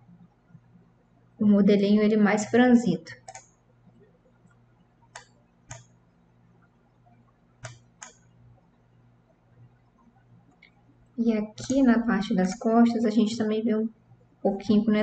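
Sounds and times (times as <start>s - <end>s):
faint low hum: 0.0s - 15.0s
computer mouse clicking: 2.4s - 3.6s, 4.5s - 6.0s, 7.6s - 8.4s, 11.5s - 12.8s.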